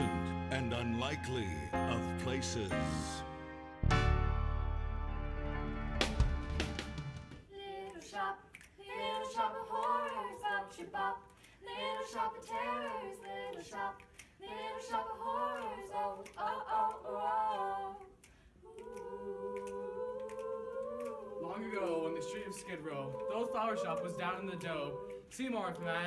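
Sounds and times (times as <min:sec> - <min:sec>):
young voices singing a cappella: 0:07.5 - 0:26.0
hands clapping the beat: 0:07.8 - 0:26.0.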